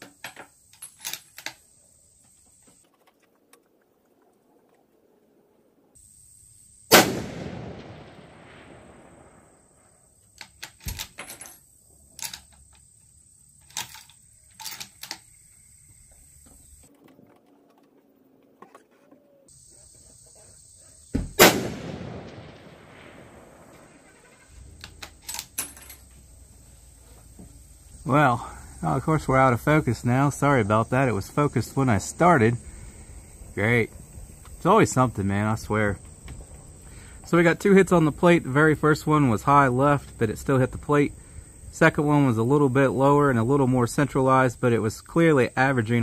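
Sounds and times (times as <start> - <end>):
rifle shots with rolling echo: 6.9 - 9.9, 21.3 - 24.4.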